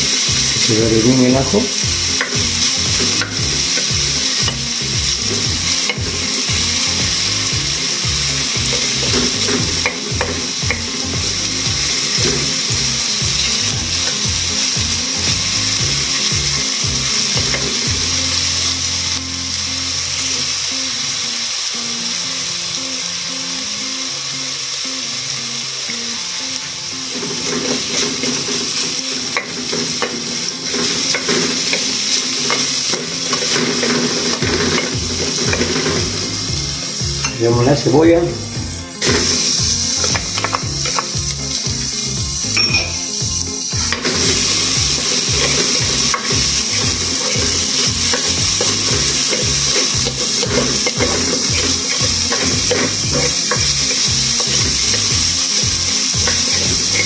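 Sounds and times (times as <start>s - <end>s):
garlic sizzling in hot oil: 0.0s - 57.0s
spatula scraping pot: 27.2s - 36.7s, 43.8s - 57.0s.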